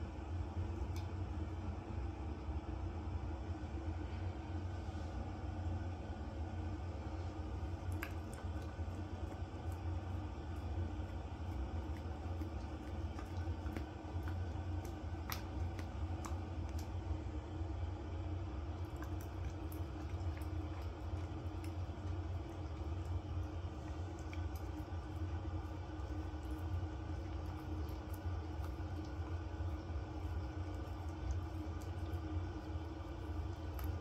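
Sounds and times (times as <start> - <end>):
low hum: 0.0 - 34.0
dog licking and smacking: 7.6 - 17.4, 18.3 - 34.0.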